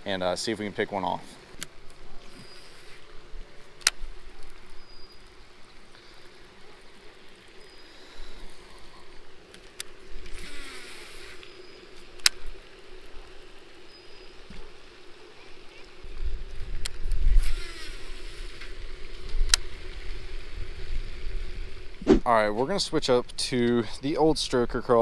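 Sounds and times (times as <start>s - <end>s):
fishing line whirring off reel: 9.6s - 12.4s, 17.0s - 18.8s.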